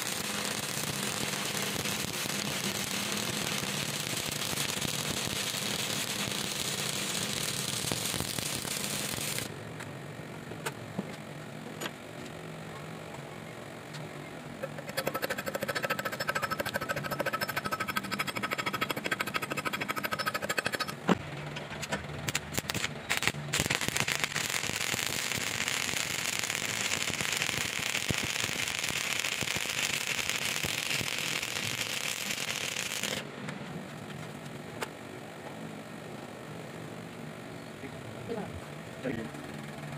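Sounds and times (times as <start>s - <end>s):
welding arc crackling and sizzling: 0.0s - 9.6s, 14.6s - 33.3s
sharp arc pops: 22.2s - 33.2s.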